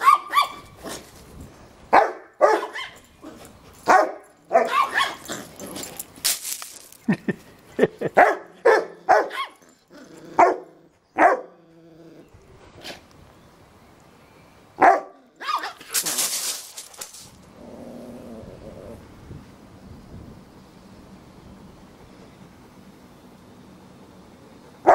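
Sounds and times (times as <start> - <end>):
dogs barking: 0.0 - 0.6, 1.9 - 5.3, 8.1 - 9.7, 10.4 - 11.6, 14.8 - 15.8.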